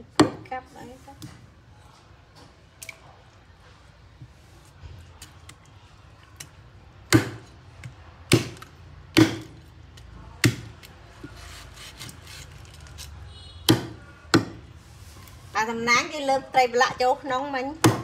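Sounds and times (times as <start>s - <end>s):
cleaver chopping on wooden block: 7.1s - 7.6s, 8.3s - 9.6s, 13.7s - 14.6s.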